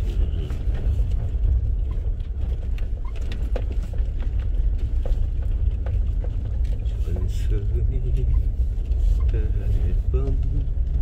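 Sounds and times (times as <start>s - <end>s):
engine and tyres rumbling: 0.0s - 11.0s
small knocks and ticks: 0.7s - 9.4s.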